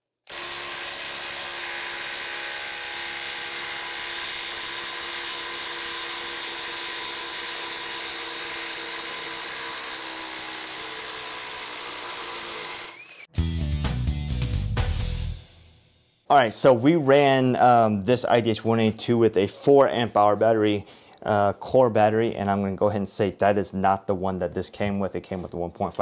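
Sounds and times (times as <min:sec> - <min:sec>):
impact driver hammering: 0:00.3 - 0:13.2
guitar music: 0:13.3 - 0:15.2.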